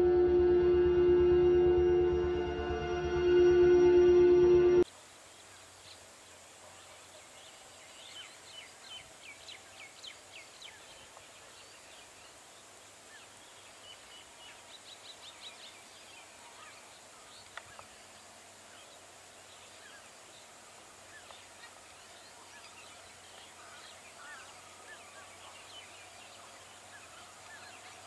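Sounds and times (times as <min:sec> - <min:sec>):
intro music: 0:00.0 - 0:04.8.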